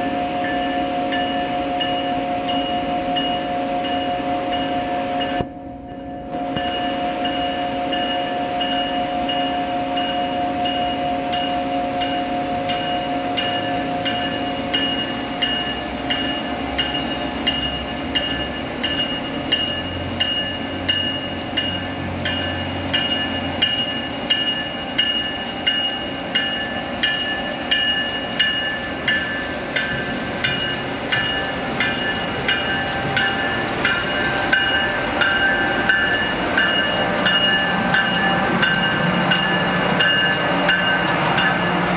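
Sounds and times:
electric locomotive hum: 0.0s - 41.9s
train wheels clicking over rail joints: 12.1s - 41.9s.

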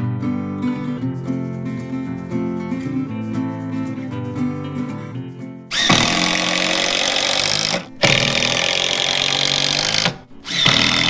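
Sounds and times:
cordless drill driving screws: 5.7s - 11.0s.

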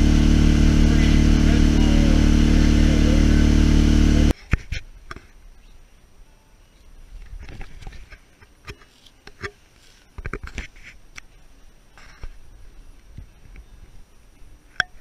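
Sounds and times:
boat motor running: 0.0s - 4.3s.

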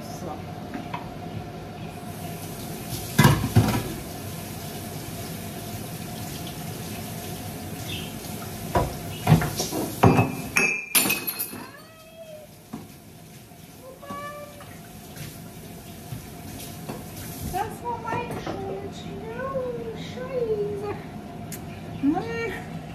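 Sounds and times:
tap water running into sink: 2.3s - 10.6s, 11.8s - 18.9s
dishes clattering: 8.8s - 11.8s.

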